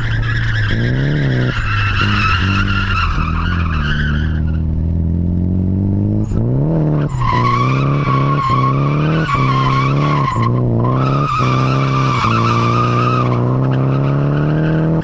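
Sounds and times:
car engine at high revs: 0.0 - 15.0
tyres squealing: 6.9 - 15.0.

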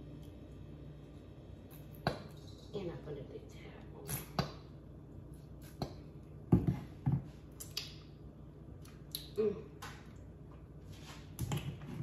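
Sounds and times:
wet mouth sound: 7.6 - 8.0.

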